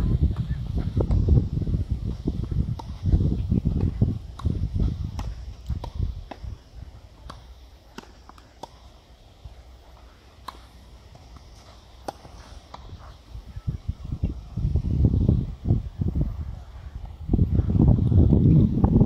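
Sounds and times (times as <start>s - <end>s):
tennis balls hit by rackets: 0.1s - 14.4s.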